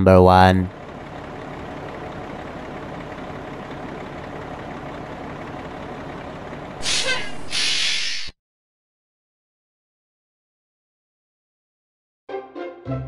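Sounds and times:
cartoon fire truck engine idling: 0.0 - 8.4
sudden loud hiss: 6.8 - 8.4.

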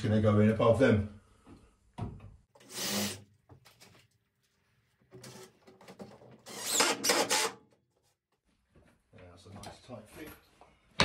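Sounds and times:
drill driving screws into wood: 2.6 - 3.3, 6.4 - 7.6.

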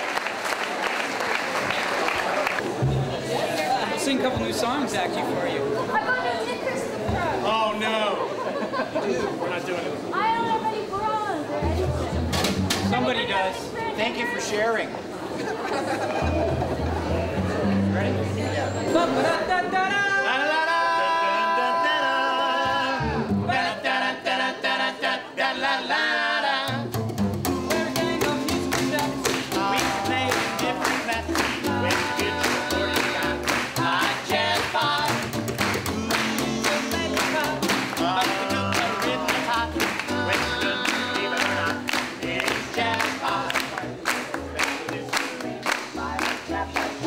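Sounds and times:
upright bass: 2.6 - 5.4, 11.6 - 13.4, 16.1 - 19.1, 22.7 - 23.8, 26.1 - 47.0
men singing in harmony: 20.0 - 43.9
ukulele: 26.7 - 47.0.

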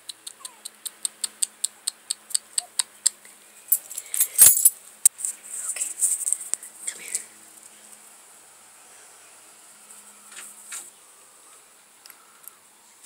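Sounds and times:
light rapid ticks: 0.0 - 3.3.

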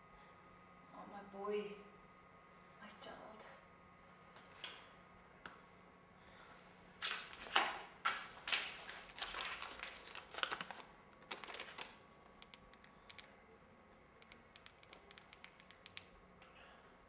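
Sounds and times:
faint clicks: 14.2 - 16.5.

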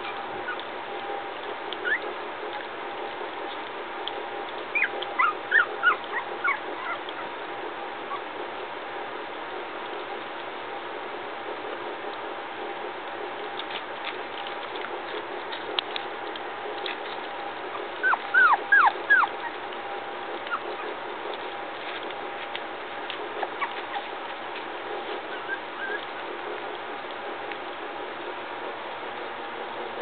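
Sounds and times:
puppies whimpering: 0.0 - 0.8, 1.4 - 2.7, 4.6 - 8.4, 16.8 - 26.3
puppies eating clicks and smacks: 0.0 - 30.0.

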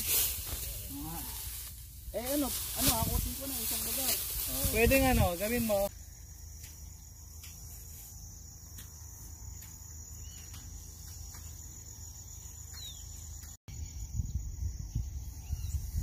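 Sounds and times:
insects trilling: 0.0 - 16.0
bird chirp: 10.0 - 16.0.

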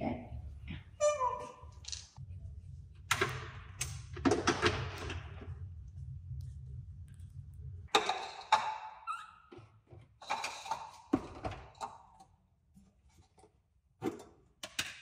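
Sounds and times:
low steady hum: 0.0 - 8.5
knocks and clatters of objects: 3.1 - 5.7, 7.9 - 12.3.

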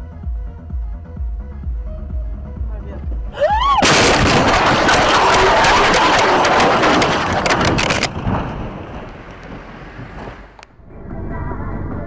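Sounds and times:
vehicle crash with shattering glass: 3.7 - 10.6.

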